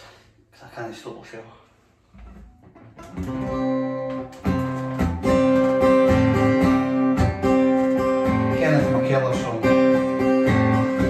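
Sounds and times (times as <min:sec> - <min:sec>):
acoustic guitar strumming: 0:02.2 - 0:11.0.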